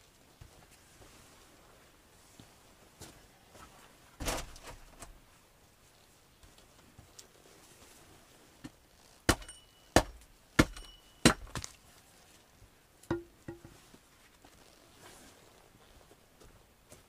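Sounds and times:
hand tool striking wood: 9.3 - 11.7, 13.0 - 13.8
short metallic ring: 9.4 - 10.0, 10.8 - 11.3.

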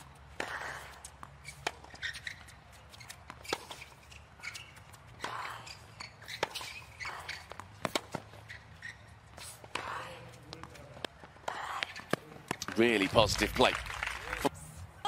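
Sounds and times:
racket hitting tennis ball: 6.2 - 8.4.

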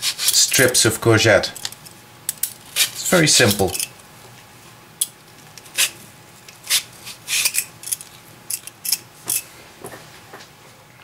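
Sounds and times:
vegetable peeler scraping: 0.0 - 0.8, 5.7 - 9.4.

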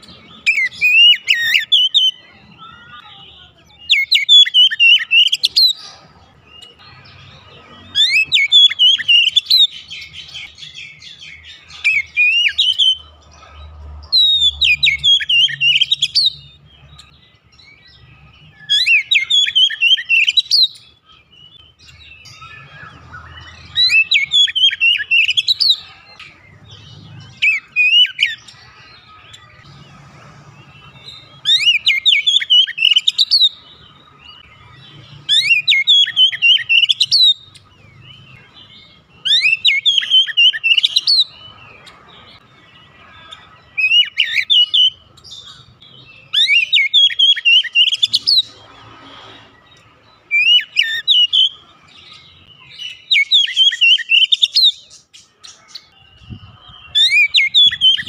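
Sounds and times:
bird singing whistles: 0.4 - 2.2, 3.9 - 5.8, 8.0 - 10.2, 17.9 - 25.8, 31.0 - 33.6, 35.3 - 37.4, 39.2 - 41.3, 46.2 - 48.4, 50.3 - 51.6, 52.5 - 54.8.

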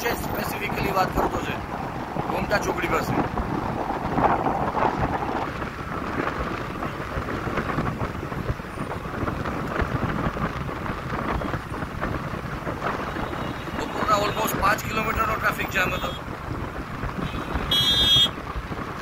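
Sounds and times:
vehicle rumble on highway: 0.0 - 19.0
wind buffeting microphone: 0.0 - 19.0.

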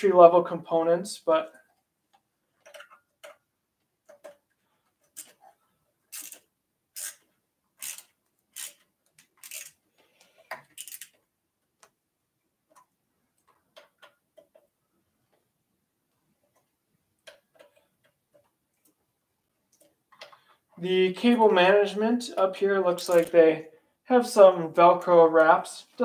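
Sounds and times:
clicks and scrapes of bike fittings: 1.6 - 3.4, 4.0 - 11.9, 17.2 - 18.5, 19.7 - 20.6, 23.0 - 23.4.

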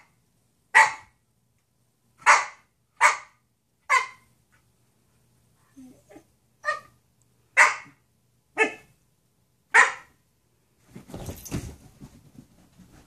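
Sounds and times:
dog barking: 0.7 - 1.1, 2.2 - 4.3, 6.6 - 7.0, 7.6 - 8.0, 8.6 - 8.9, 9.7 - 10.2
rustling scuffle: 10.8 - 13.0.

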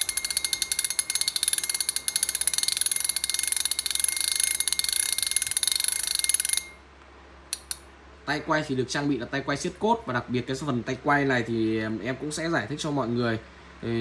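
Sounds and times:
fishing reel drag clicking: 0.0 - 6.8.

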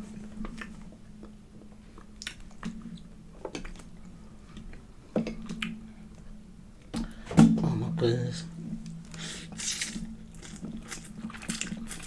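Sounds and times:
person chewing food: 0.2 - 6.3, 8.8 - 12.0
wet mouth clicks and smacks: 2.2 - 2.7.

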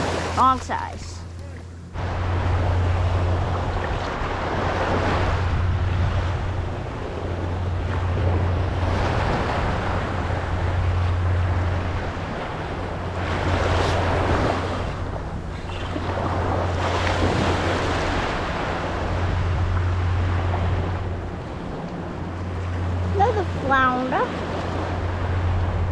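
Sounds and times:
low wind rumble on microphone: 0.0 - 25.9
small surf waves washing: 0.0 - 25.9.

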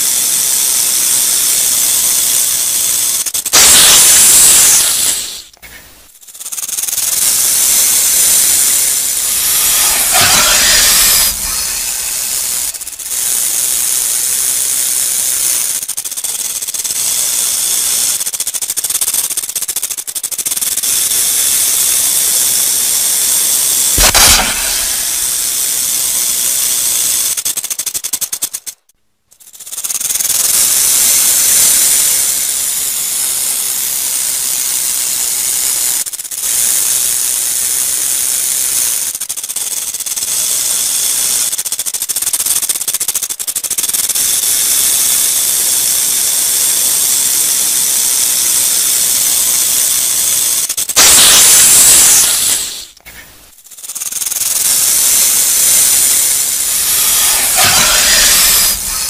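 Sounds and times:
rattlesnake rattling: 0.0 - 59.0.

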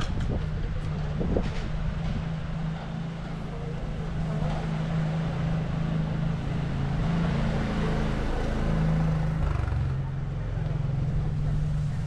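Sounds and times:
engine humming: 0.0 - 12.0
street noise: 0.0 - 12.0.

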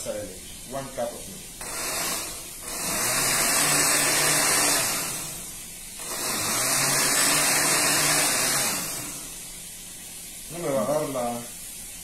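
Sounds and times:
countertop blender running: 1.6 - 9.6.

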